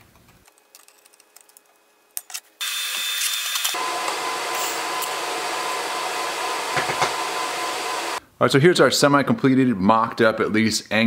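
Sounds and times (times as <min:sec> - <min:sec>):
welding arc hissing: 0:02.6 - 0:08.2.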